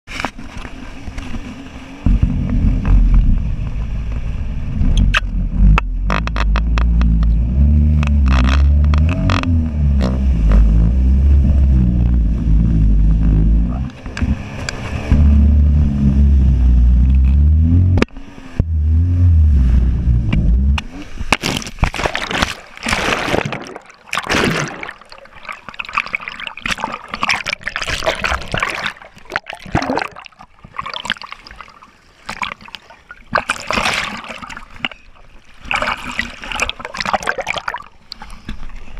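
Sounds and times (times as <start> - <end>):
water splashing and gurgling: 0.1 - 38.9
jet ski engine running: 0.2 - 21.3.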